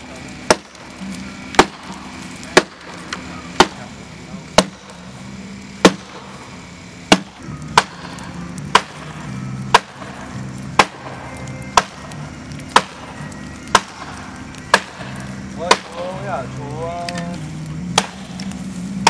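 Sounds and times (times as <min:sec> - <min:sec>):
axe chopping wood: 0:00.4 - 0:03.0, 0:03.6 - 0:03.9, 0:04.6 - 0:05.0, 0:05.8 - 0:06.3, 0:07.1 - 0:09.1, 0:09.7 - 0:10.2, 0:10.8 - 0:12.1, 0:12.7 - 0:13.1, 0:13.7 - 0:16.0, 0:17.9 - 0:18.5.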